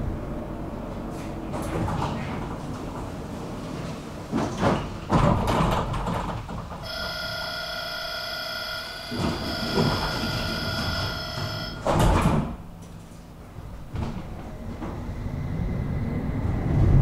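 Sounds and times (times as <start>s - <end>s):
tram door clunks and thumps: 1.0s - 15.3s
electronic door warning beep: 6.8s - 12.1s.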